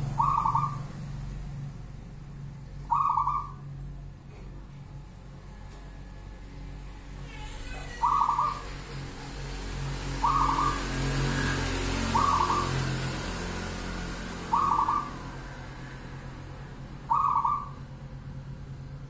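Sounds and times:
dove cooing: 0.0s - 0.9s, 2.9s - 3.7s, 7.8s - 8.8s, 10.1s - 13.1s, 14.4s - 15.5s, 17.0s - 17.9s
low hum: 0.0s - 19.0s.

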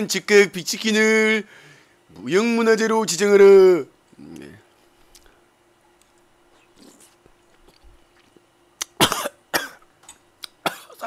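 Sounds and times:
man coughing hard: 9.0s - 9.8s, 10.6s - 11.0s.

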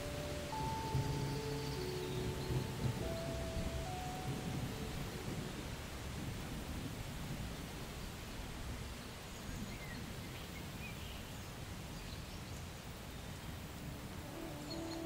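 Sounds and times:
faint high chirps: 0.0s - 5.6s
low thunder rumble: 0.0s - 9.0s
rain hiss: 0.0s - 15.0s.

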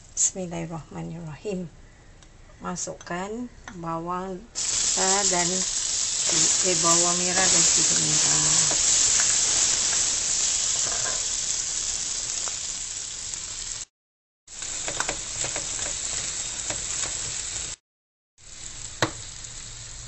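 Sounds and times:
food sizzling in butter: 4.6s - 13.9s, 14.5s - 17.8s, 18.4s - 20.0s.

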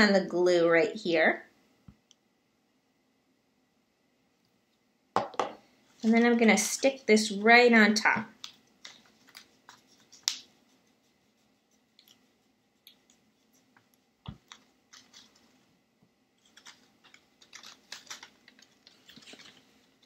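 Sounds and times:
paper crackling and rustling: 8.0s - 15.7s, 16.4s - 20.0s.

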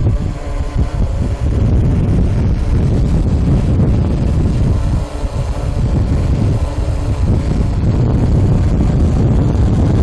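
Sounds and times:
wind buffeting microphone: 0.0s - 10.0s.

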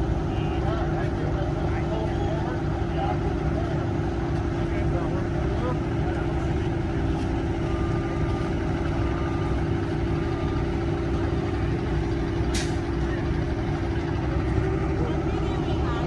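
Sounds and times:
bus engine rumbling: 0.0s - 16.0s
air brake hiss: 12.5s - 12.9s.

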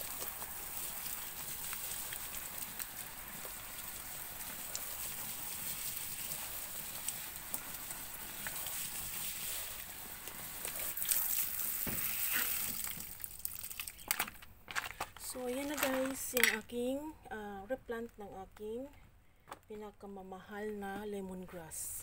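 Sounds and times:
hose water spraying on leaves: 0.0s - 13.8s.

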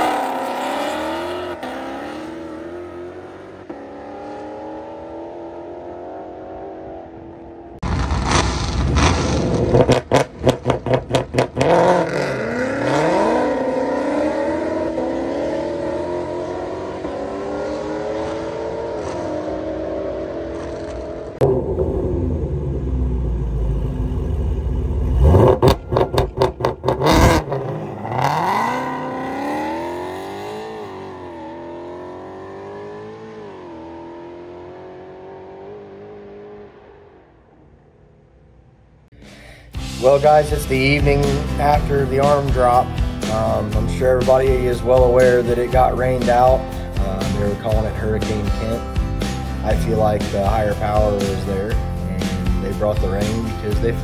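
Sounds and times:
car engines revving and accelerating: 0.0s - 37.7s, 40.1s - 54.0s.

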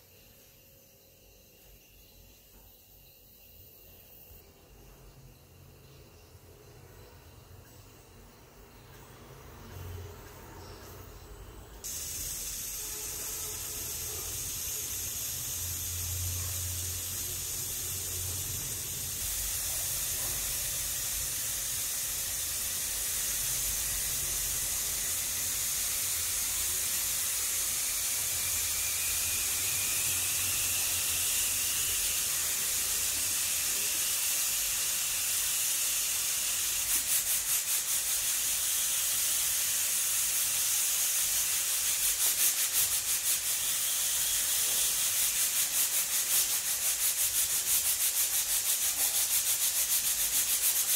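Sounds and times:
pressure cooker hissing steam: 11.8s - 50.9s.

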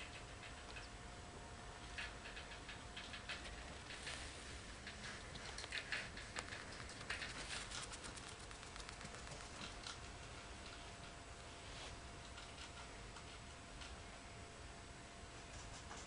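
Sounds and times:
rat teeth clicking: 5.3s - 10.0s.

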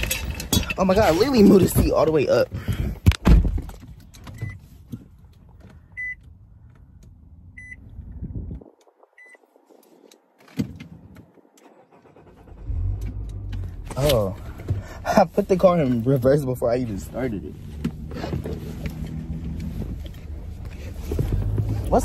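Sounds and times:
car warning chime beeping: 6.0s - 6.2s, 7.6s - 7.8s.

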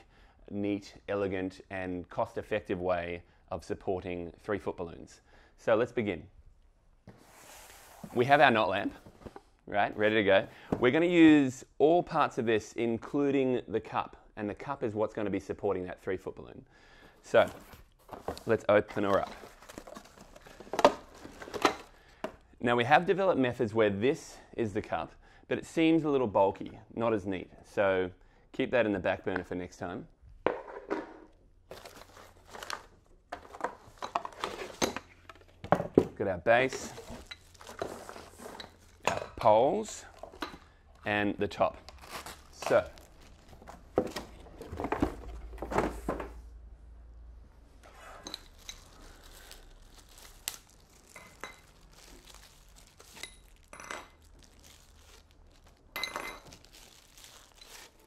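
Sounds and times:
packaging rustling and crinkling: 17.2s - 22.0s, 31.7s - 35.6s, 36.6s - 39.0s, 41.8s - 46.2s, 48.2s - 58.0s
metal lamp parts clinking: 53.2s - 54.2s, 56.0s - 56.6s.

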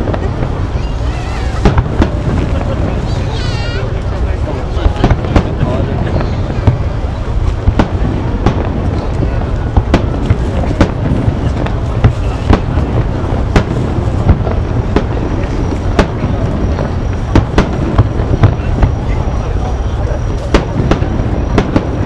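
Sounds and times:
fireworks bursting with sharp bangs: 0.0s - 22.0s.

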